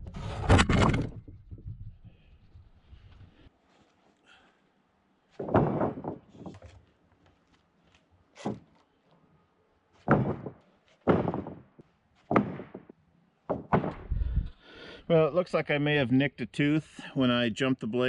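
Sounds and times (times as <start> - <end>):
wooden boards thunking onto stack: 0.2 - 1.3, 5.4 - 6.8, 10.0 - 12.9, 13.5 - 14.2.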